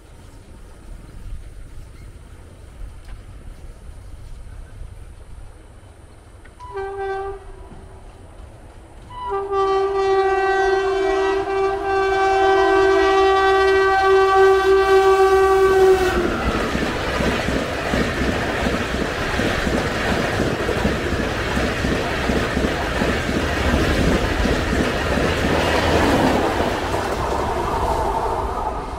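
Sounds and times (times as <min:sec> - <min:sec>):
train coaches rumbling past: 0:00.0 - 0:28.9
locomotive horn blasts: 0:06.6 - 0:07.9, 0:09.1 - 0:16.2
wheel clatter on rails: 0:16.2 - 0:27.7.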